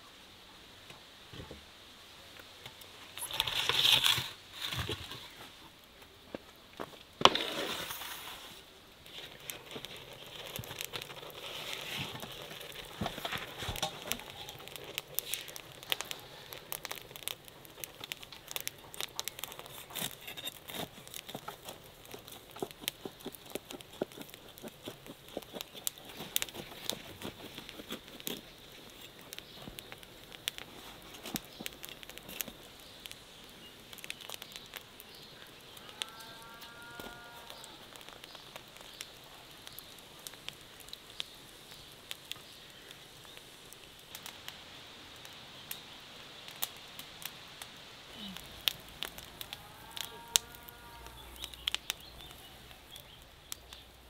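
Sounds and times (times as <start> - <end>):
bread being torn: 9.1 - 32.8
knife cutting crunchy crust: 19.5 - 29.1.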